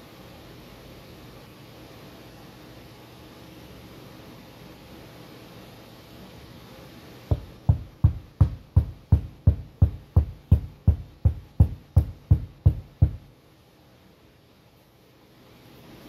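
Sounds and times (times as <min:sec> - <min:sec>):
kick drum beat: 0:07.3 - 0:13.3.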